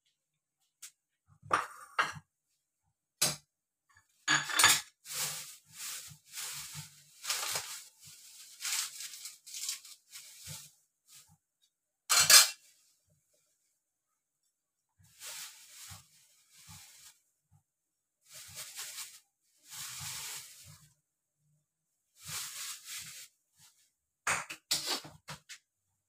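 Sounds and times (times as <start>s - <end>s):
rustling handling noise: 4.9s - 11.3s, 15.1s - 17.3s, 18.2s - 21.0s, 22.2s - 23.9s.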